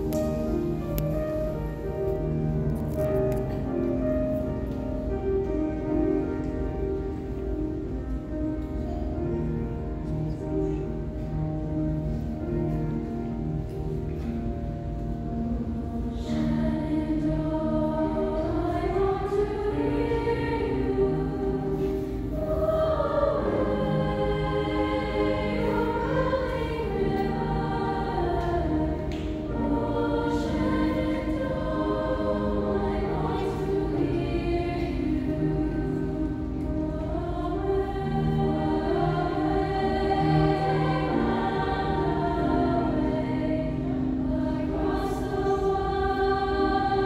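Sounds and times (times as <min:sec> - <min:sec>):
mixed choir singing: 0:15.0 - 0:47.0.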